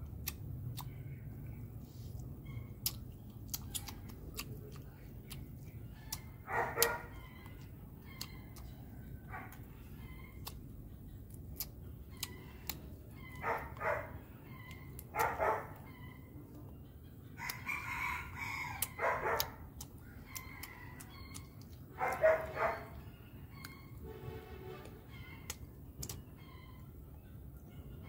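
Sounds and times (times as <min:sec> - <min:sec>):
rooster crowing: 0:17.4 - 0:19.2.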